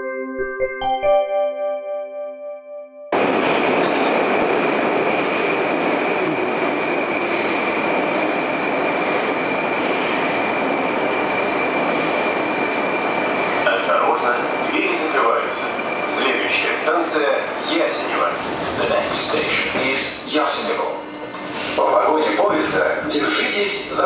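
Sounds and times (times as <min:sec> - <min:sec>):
ringing title music: 0:00.0 - 0:03.2
subway train standing at platform: 0:00.4 - 0:24.0
train moving on next track: 0:03.2 - 0:24.0.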